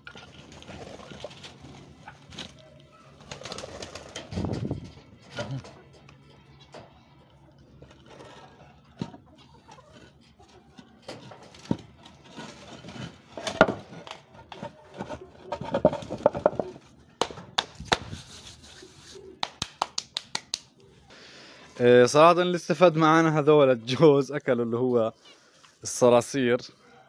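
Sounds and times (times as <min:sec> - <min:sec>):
stone slab scraping over stone: 0:12.2 - 0:16.8
stones knocking together: 0:15.6 - 0:16.8.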